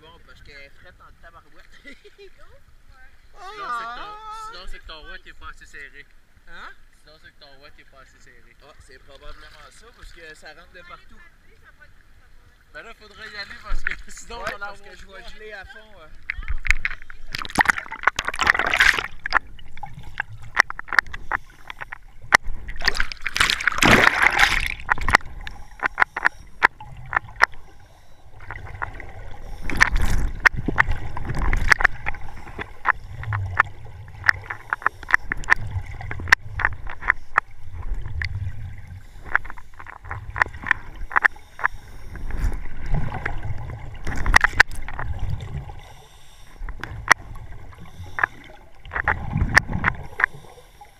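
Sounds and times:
water sloshing and splashing: 0:07.8 - 0:50.9
diver's bubbles clicking and gurgling: 0:16.2 - 0:46.0, 0:46.6 - 0:50.7.

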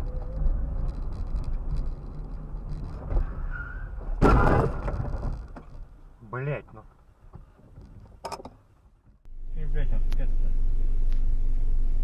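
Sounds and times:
car driving low rumble: 0:00.0 - 0:12.0
car crash: 0:02.6 - 0:05.9.

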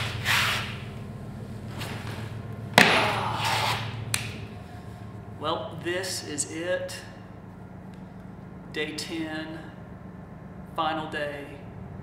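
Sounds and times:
steady low hum: 0:00.0 - 0:12.0
sharp thump: 0:02.8 - 0:03.9.

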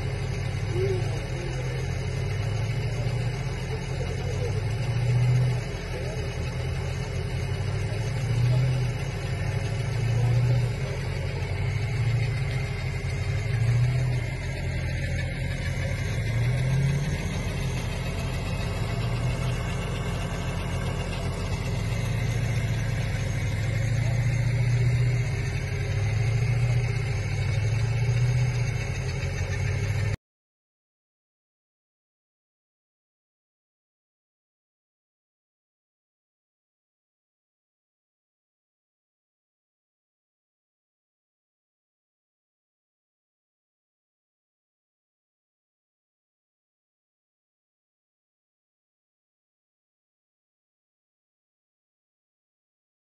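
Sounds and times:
car engine running under load: 0:00.0 - 0:30.2.

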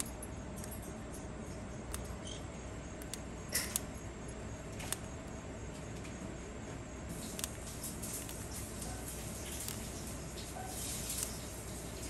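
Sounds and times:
steady background noise: 0:00.0 - 0:12.0
bird crunching food pellet: 0:07.1 - 0:12.0.

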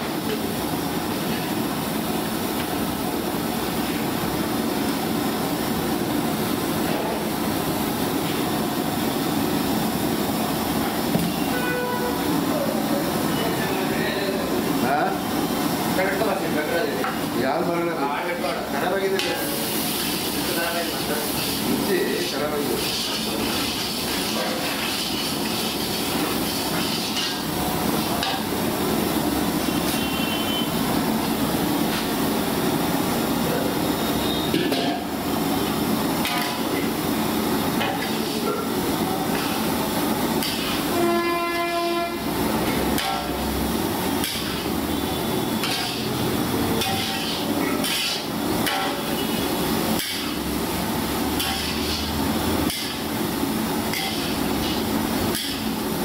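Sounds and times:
steady cooking roar: 0:00.0 - 0:56.0
horn sounding: 0:11.3 - 0:12.3, 0:40.9 - 0:42.3.

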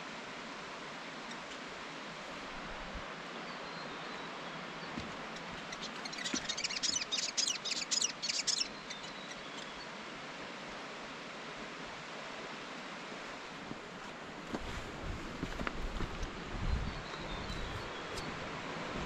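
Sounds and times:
steady rushing hiss: 0:00.0 - 0:03.5
songbird chirping: 0:03.4 - 0:10.0, 0:15.9 - 0:18.5.

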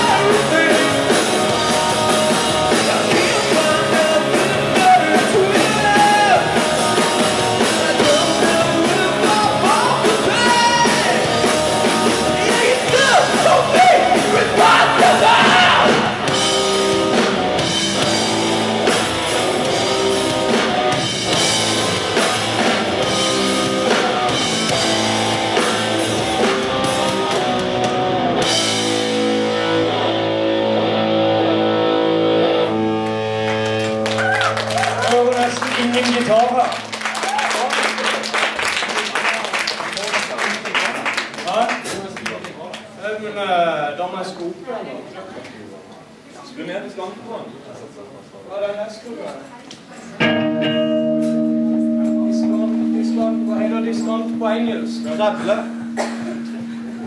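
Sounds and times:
lead vocal singing: 0:00.0 - 0:16.3
distorted electric guitars: 0:00.0 - 0:37.0, 0:50.2 - 0:57.0
bass guitar: 0:00.0 - 0:37.1, 0:50.2 - 0:57.0
drums: 0:00.0 - 0:39.9, 0:41.3 - 0:42.2, 0:49.8 - 0:57.0.

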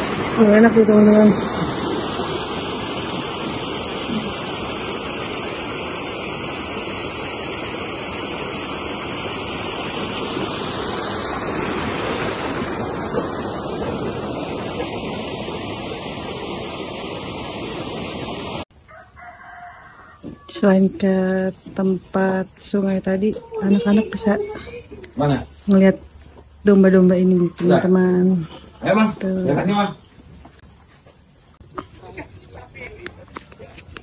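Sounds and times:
stream rushing over rocks: 0:00.0 - 0:18.6.

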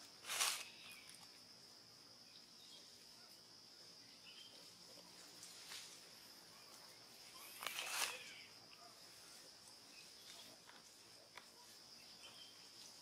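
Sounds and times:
faint bird chirps: 0:02.2 - 0:05.2, 0:06.5 - 0:10.6, 0:11.5 - 0:13.0.

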